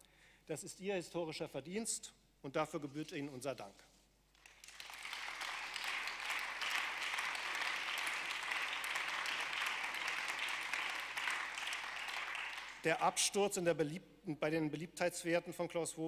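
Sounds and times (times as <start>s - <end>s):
crowd applauding: 4.4s - 13.0s.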